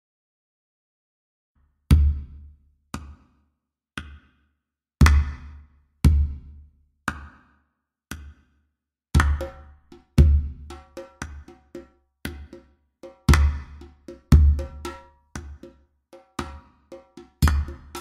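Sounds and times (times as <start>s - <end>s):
slow sparse drum beat: 9.2s - 18.0s.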